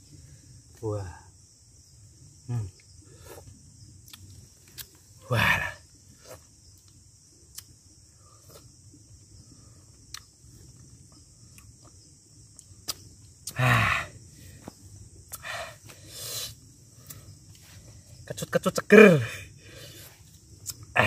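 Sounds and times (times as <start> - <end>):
insects buzzing: 0.0 - 21.0
low grunt: 5.2 - 5.8, 13.5 - 14.2.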